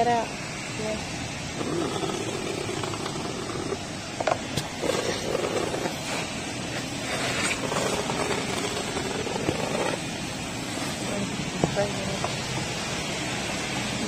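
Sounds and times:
vacuum hose sucking: 1.6 - 11.3.

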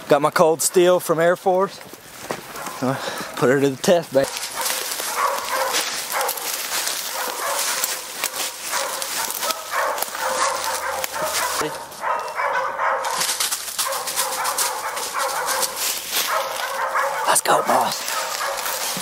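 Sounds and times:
hunting dogs barking: 2.5 - 19.0.

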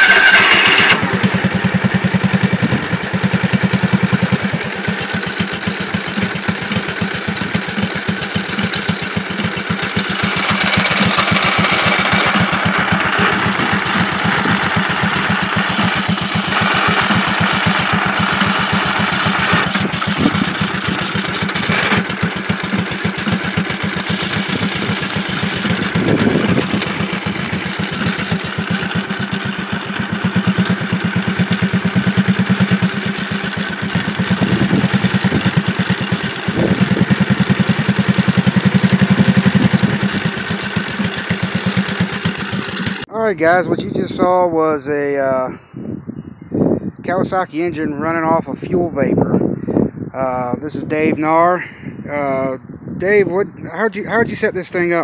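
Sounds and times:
mower engine running: 0.0 - 43.1.

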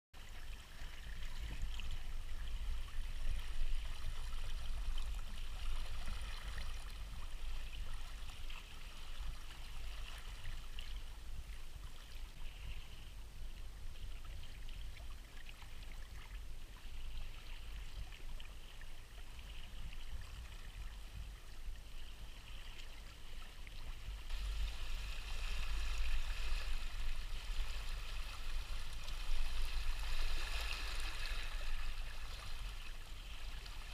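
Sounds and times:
low steady rumble: 0.2 - 33.9
water rushing along kayak hulls: 16.8 - 33.9.

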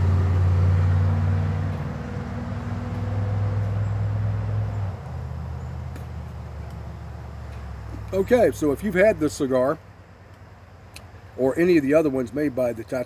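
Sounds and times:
low mechanical drone: 0.0 - 11.6.

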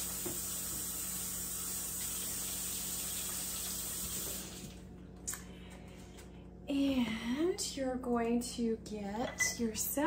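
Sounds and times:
tap running water into sink: 0.0 - 4.8.

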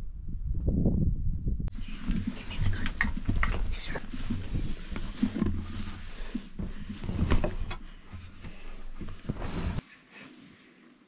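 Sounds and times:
clothing rustle: 1.7 - 11.0.

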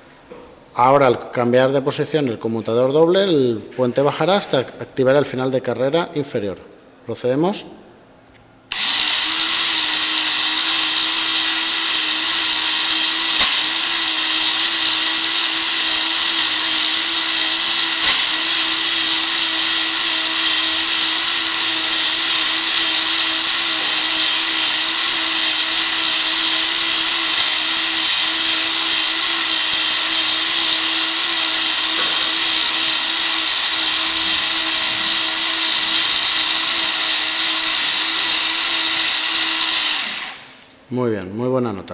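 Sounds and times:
small electric motor whirring: 8.7 - 40.7.

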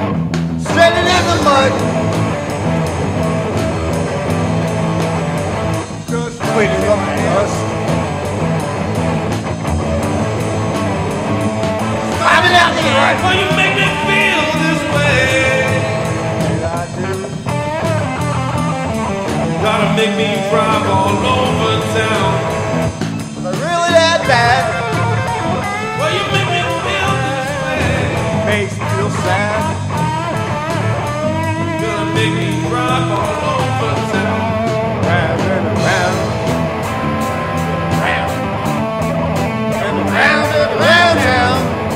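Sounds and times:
rock band music: 0.0 - 41.9.

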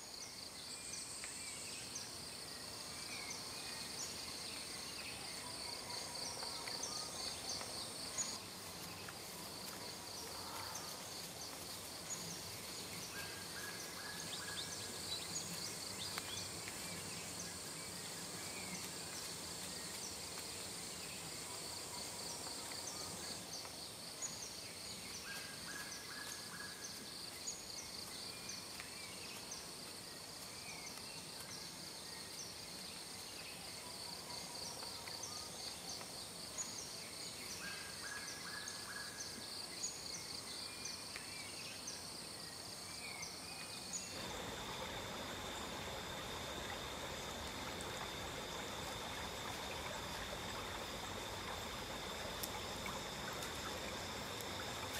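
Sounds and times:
running stream water: 0.0 - 33.4, 34.7 - 54.9
pulsing insect chorus: 43.8 - 54.9
high insect whine: 44.1 - 54.9.

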